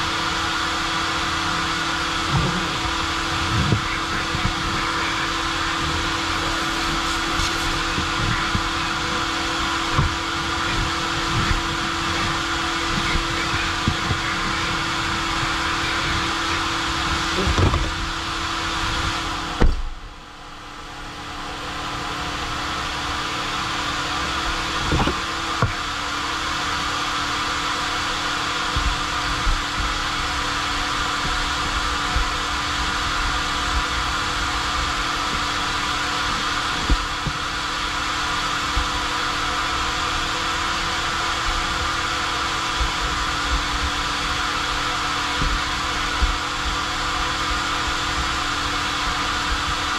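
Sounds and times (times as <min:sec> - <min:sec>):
vacuum rushing air and hum: 0:00.0 - 0:49.9
knocks in vacuum hose: 0:19.6 - 0:19.9.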